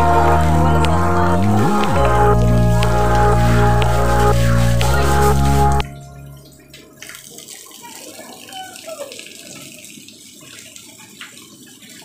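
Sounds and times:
rain splashing on concrete: 6.5 - 12.0.

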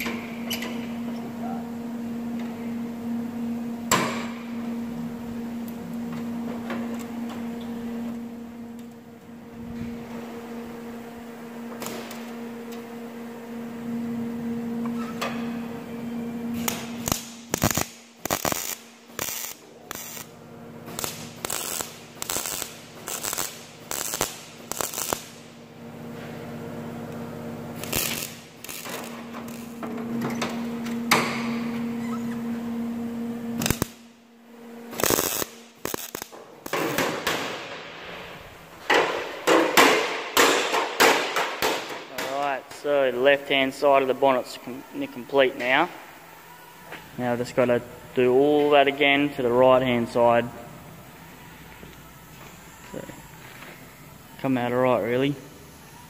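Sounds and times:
steady low hum: 0.0 - 56.0
welder stitch welding steel: 16.5 - 25.6, 27.2 - 29.8, 33.6 - 34.1, 34.9 - 38.4.

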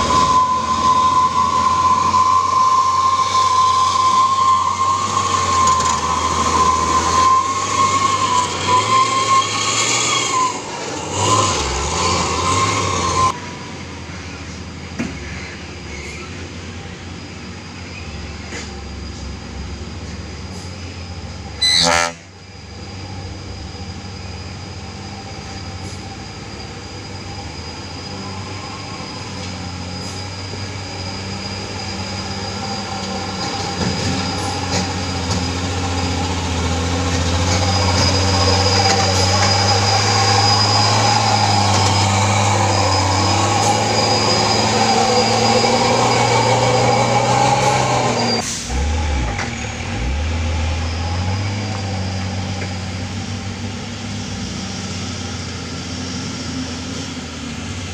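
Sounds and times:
thin high whine: 0.0 - 14.5, 16.1 - 57.8
truck diesel engine running hard: 0.0 - 15.1, 22.7 - 57.9
truck engine drone: 0.0 - 57.9.

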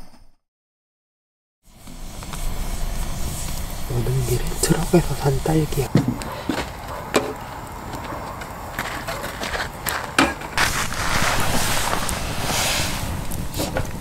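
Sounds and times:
campfire crackling and popping: 10.6 - 14.0
rushing hiss: 10.6 - 14.0.

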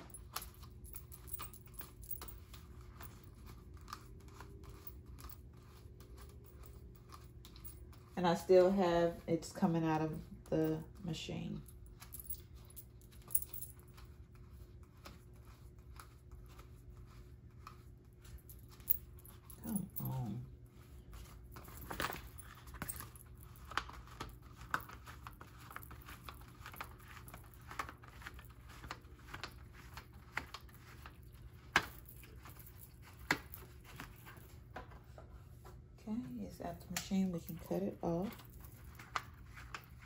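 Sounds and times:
notebooks being handled: 12.1 - 35.8, 37.0 - 40.0.

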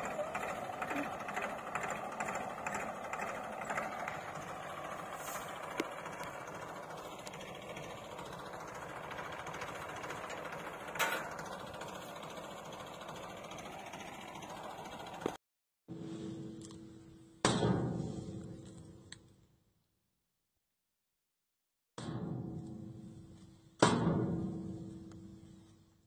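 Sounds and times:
threshing machine mechanical hum: 0.0 - 15.4
tractor engine running: 0.0 - 15.4.

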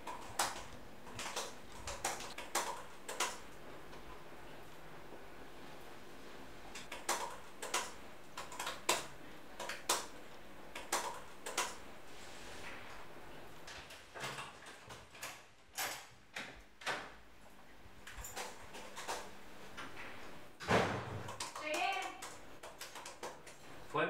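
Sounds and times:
laptop keyboard typing: 0.0 - 3.6, 6.7 - 11.8, 18.1 - 19.3, 21.2 - 23.7.

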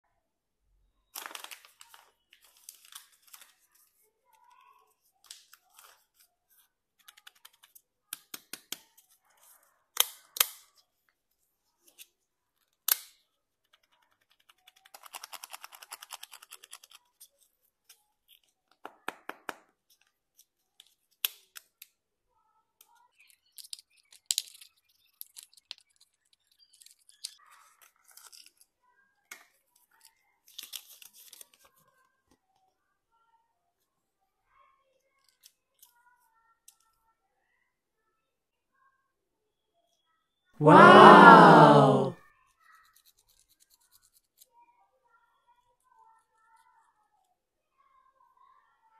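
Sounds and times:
sharp plastic snaps: 12.8 - 13.2.

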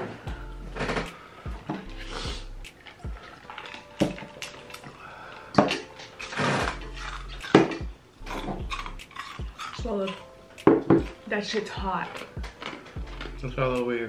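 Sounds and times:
hissing breaths through mouth: 1.0 - 3.6
people slurping noodles: 4.6 - 7.6
tableware knocking: 7.5 - 9.9, 10.6 - 11.2.

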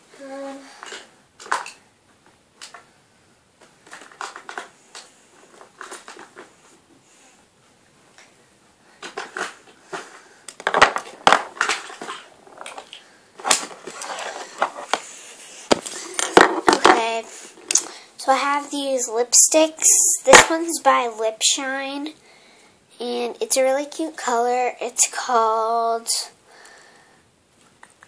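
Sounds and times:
small objects clicking and knocking: 0.8 - 1.8, 3.6 - 6.5, 9.0 - 15.1.

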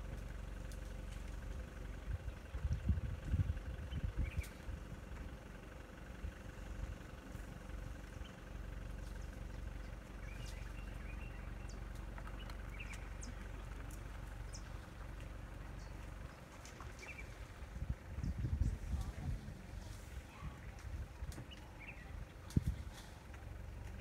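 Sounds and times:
vehicle engine idling: 0.0 - 24.0
bird chirps: 3.9 - 4.6, 9.1 - 13.6, 15.6 - 17.4.

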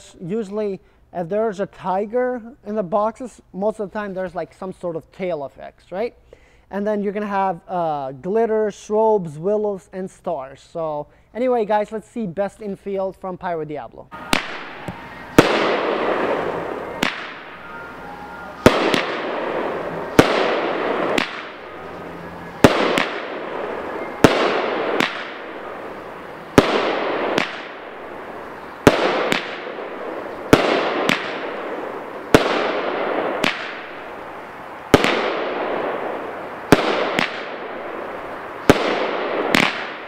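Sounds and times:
firework bangs: 14.1 - 40.0
firework crackling hiss: 14.2 - 40.0.

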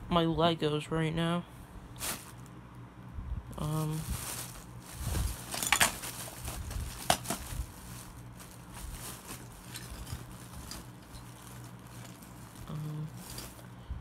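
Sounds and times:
plastic bag rustling: 2.0 - 2.5, 3.5 - 13.8.

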